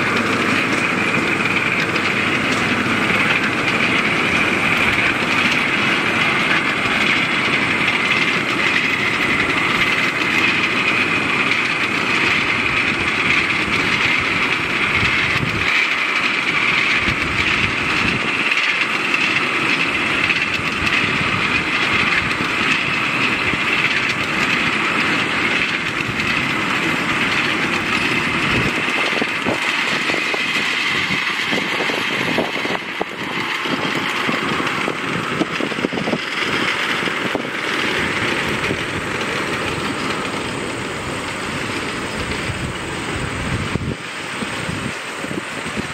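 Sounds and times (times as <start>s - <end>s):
miniature railway cars rolling: 0.0s - 45.9s
wheels clicking over rail joints: 0.0s - 45.9s.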